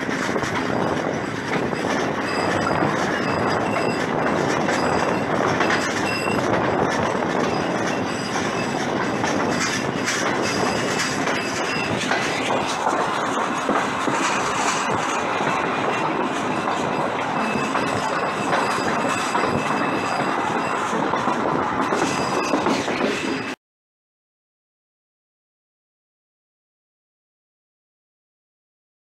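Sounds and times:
train wheels clattering over rails: 0.0 - 23.6
high-pitched wheel squeals: 0.8 - 23.6.

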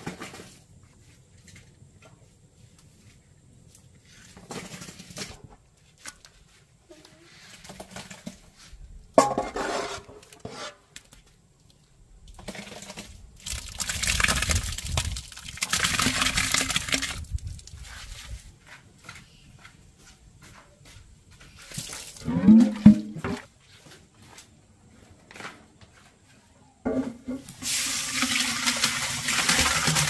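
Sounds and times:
metal pot scraping in pot: 9.2 - 10.8, 22.2 - 23.4
mash splashing into bucket: 12.4 - 17.5, 27.6 - 30.0.

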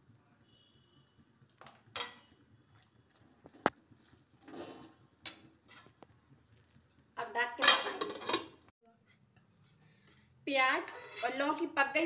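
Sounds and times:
spoon scraping a pan: 3.4 - 6.0, 7.6 - 11.7.

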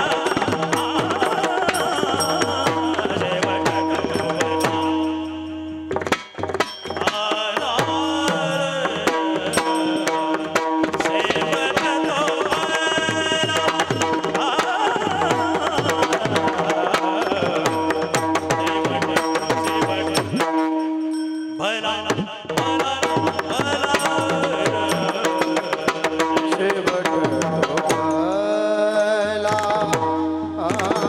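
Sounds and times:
person singing: 0.0 - 5.6, 7.0 - 20.6
harmonium: 0.0 - 31.0.

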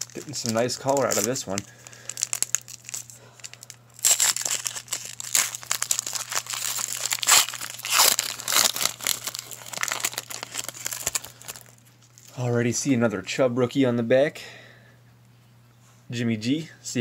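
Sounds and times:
foil wrapper tearing and crinkling: 0.0 - 12.3.

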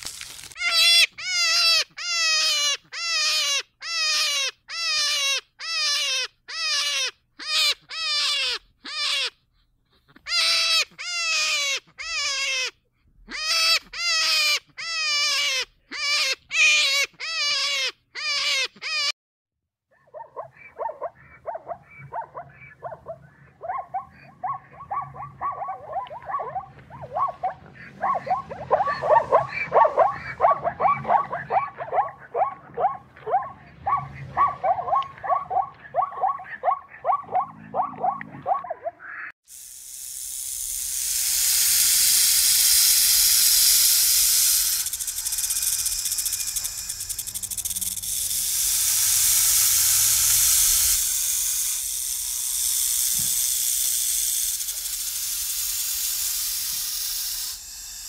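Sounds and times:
short falling animal calls: 0.3 - 9.3, 20.2 - 39.3
dense chorus of animal calls: 20.0 - 39.3.

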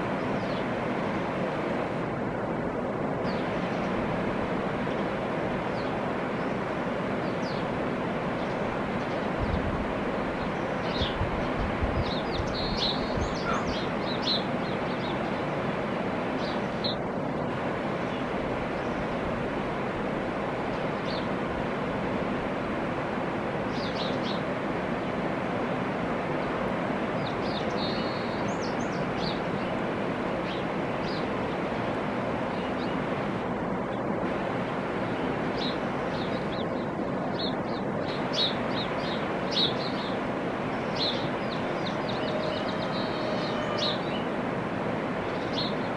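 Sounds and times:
river rushing over rocks: 0.0 - 45.9
small birds chirping: 10.3 - 15.5, 23.7 - 24.5, 26.5 - 31.4, 35.1 - 44.4, 45.2 - 45.9.

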